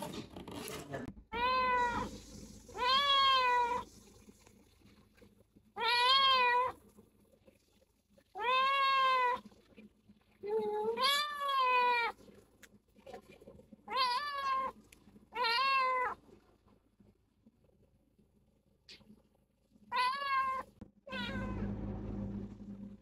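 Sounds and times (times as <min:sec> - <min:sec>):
kitten meowing: 0:01.4 - 0:03.8, 0:20.0 - 0:21.6.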